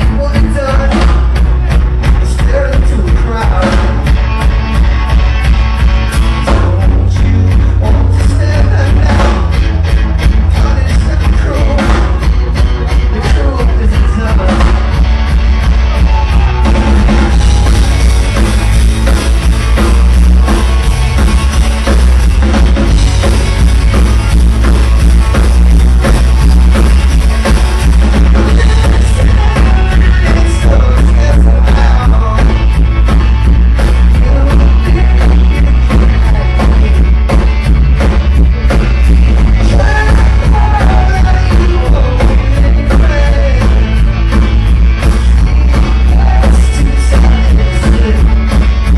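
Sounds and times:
drum kit pounding: 0:00.0 - 0:48.9
live rock band playing: 0:00.0 - 0:48.9
person singing: 0:06.4 - 0:09.6, 0:10.3 - 0:15.0, 0:28.2 - 0:32.8, 0:33.8 - 0:44.2, 0:45.3 - 0:48.7.

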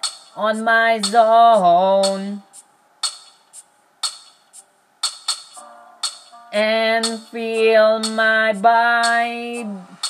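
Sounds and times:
percussion beat: 0:00.0 - 0:00.4, 0:01.0 - 0:01.2, 0:02.0 - 0:06.4, 0:07.0 - 0:07.4, 0:09.0 - 0:09.2.

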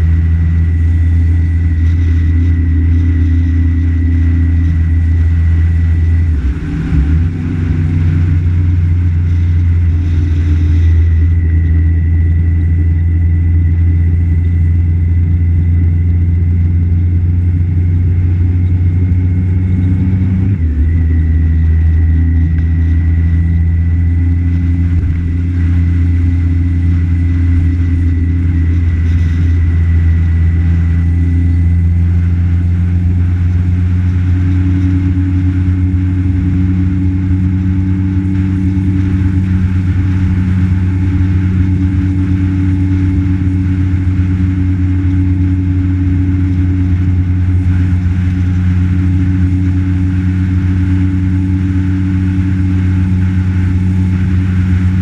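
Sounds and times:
road noise: 0:00.0 - 0:55.0
vehicle engine running: 0:00.0 - 0:55.0.

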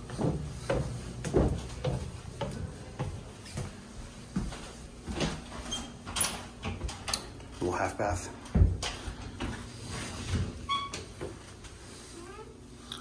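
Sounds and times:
footsteps on hardwood floor: 0:00.0 - 0:06.9, 0:08.4 - 0:10.6
footsteps on wooden stairs: 0:00.0 - 0:06.9.

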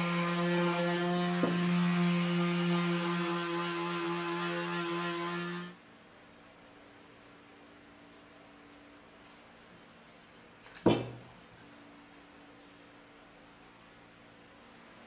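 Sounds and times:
faint steady hum: 0:00.0 - 0:15.0
wood knocking on workbench: 0:01.4 - 0:01.6, 0:10.8 - 0:11.3.

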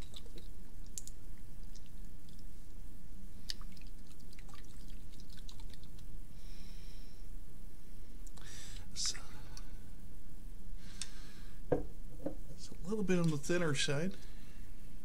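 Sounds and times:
small clicks and splashes: 0:00.0 - 0:02.5, 0:03.5 - 0:06.1.

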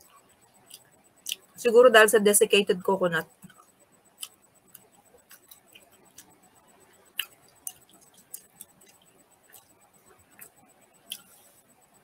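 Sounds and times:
mouth chewing sticky food: 0:00.5 - 0:01.6, 0:03.4 - 0:11.4
wet mouth clicks and smacks: 0:00.7 - 0:01.5, 0:07.1 - 0:09.7.

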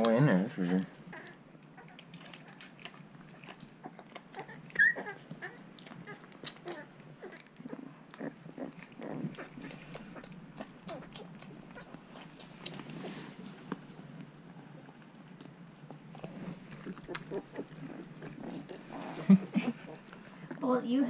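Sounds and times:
puppy squealing and whimpering: 0:01.1 - 0:02.6, 0:03.4 - 0:07.9
dog snuffling and licking: 0:01.8 - 0:14.3, 0:14.9 - 0:20.3.

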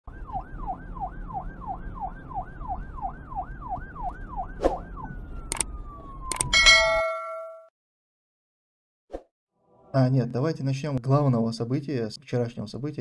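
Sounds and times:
siren yelping: 0:00.1 - 0:06.9
sharp clicks: 0:05.5 - 0:05.7, 0:06.3 - 0:06.5.

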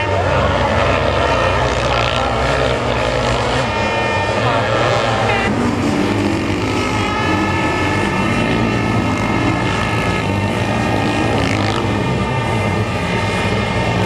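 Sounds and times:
racing engines at high revs: 0:00.0 - 0:14.0.

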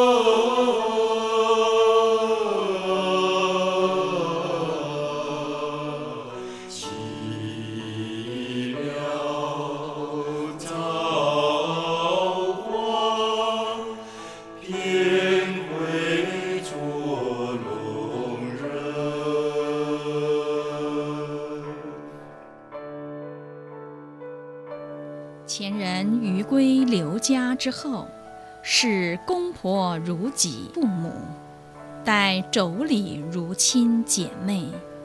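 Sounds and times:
person singing slow song: 0:00.0 - 0:22.2.

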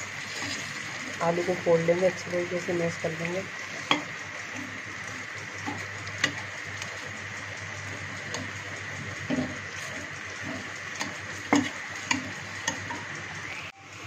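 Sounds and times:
spoon mashing potatoes: 0:03.7 - 0:13.3.

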